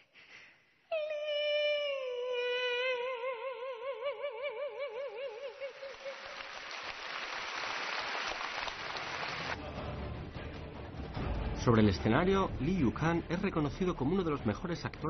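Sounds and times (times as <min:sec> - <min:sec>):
audience applause: 0:05.8 - 0:09.6.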